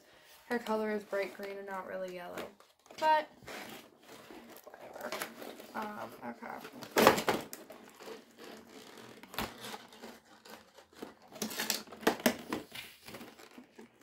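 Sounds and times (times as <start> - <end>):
cardboard and plastic crinkling: 0.1 - 14.0.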